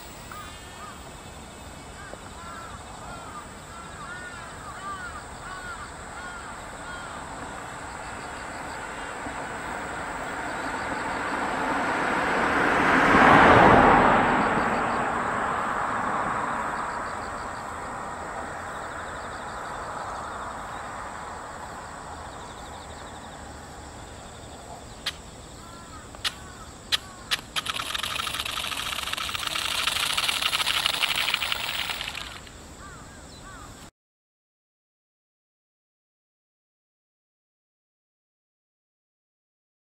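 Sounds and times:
sharp clicks: 25.0 - 25.2, 26.1 - 32.5
toy airplane motors buzzing: 27.3 - 32.5.

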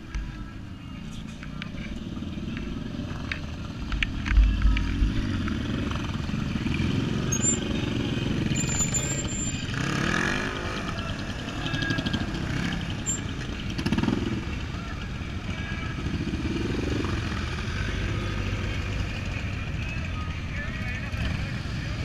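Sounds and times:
motorcycle engines revving past: 2.1 - 14.8.

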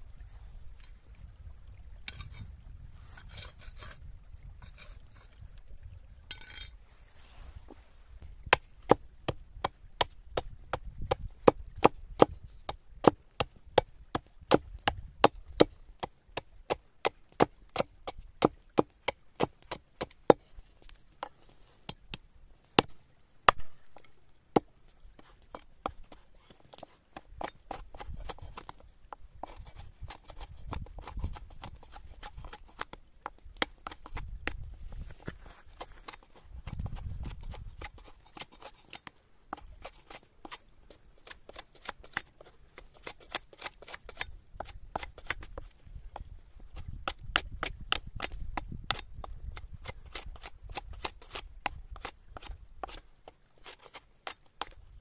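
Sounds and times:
knife chopping wood: 8.5 - 20.4, 22.8 - 24.7, 46.8 - 53.0
knife shaving wood: 25.2 - 33.0, 33.6 - 45.7, 46.8 - 54.8.

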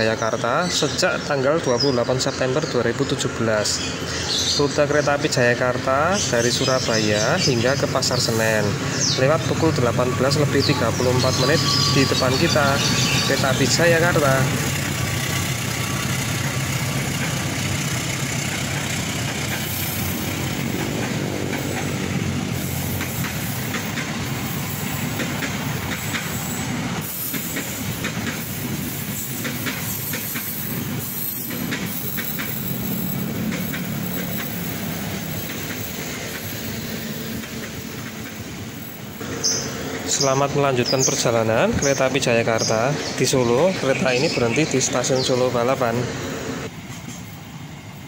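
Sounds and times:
train coaches rolling: 0.0 - 48.0
wheel clacks: 12.8 - 26.5, 27.2 - 38.5.

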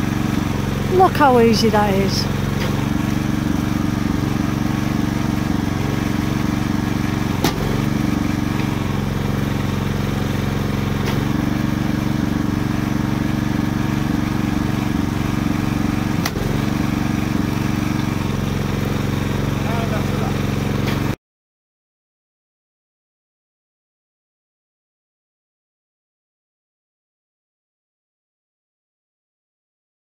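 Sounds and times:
small engine running: 0.0 - 21.2.

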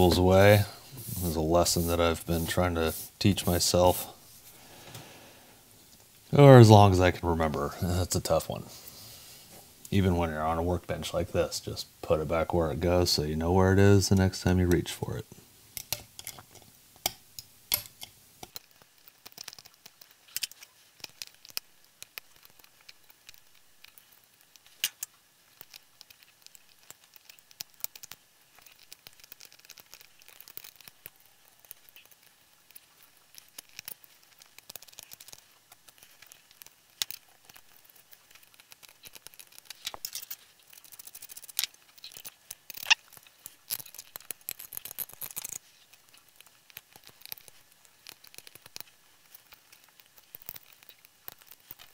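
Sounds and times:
small plastic clicks and snaps: 17.0 - 51.9.

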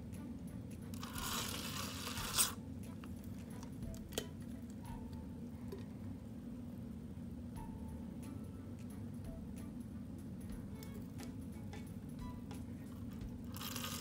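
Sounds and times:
syringe squirting water into cup: 1.0 - 2.6, 13.5 - 14.0.

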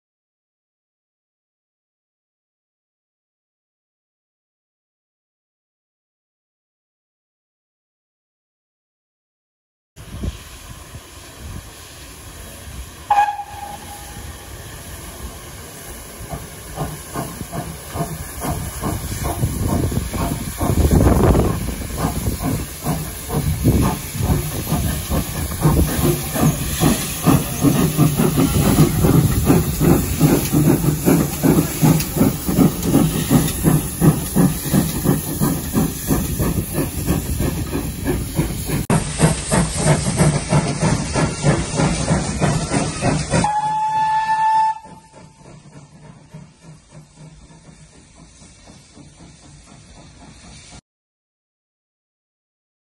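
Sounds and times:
steam locomotive exhaust beats: 10.0 - 50.8
steam whistle: 13.1 - 14.4, 43.4 - 45.4.

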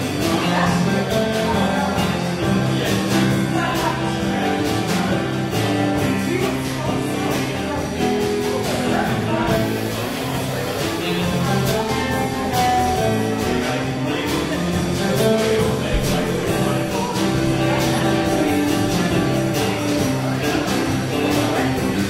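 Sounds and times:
bass line: 0.0 - 22.0
live rock band playing: 0.0 - 22.0
drum beat: 14.5 - 20.4.

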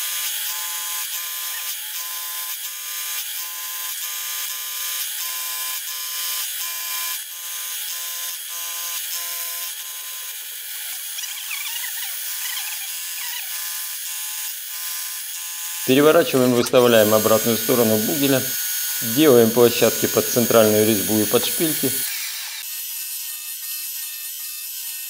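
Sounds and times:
milling machine cutting metal: 15.8 - 22.6.

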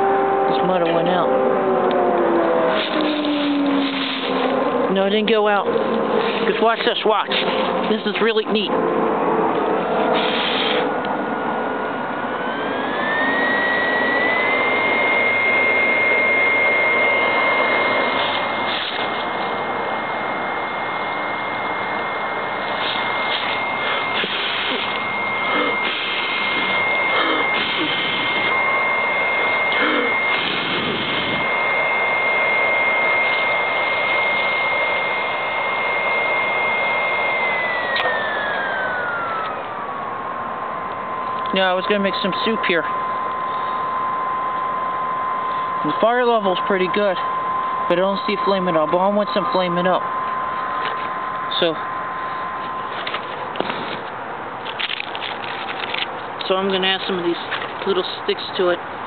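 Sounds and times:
stove fan whine: 0.0 - 59.0
forced air rushing through fire: 10.0 - 11.0, 22.7 - 28.5, 29.8 - 31.4.

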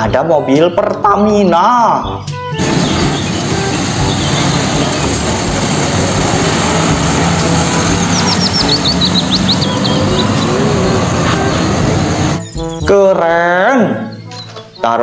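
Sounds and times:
truck engine rumble driving past: 2.6 - 12.5
bird chirping: 2.6 - 12.9, 13.9 - 15.0.

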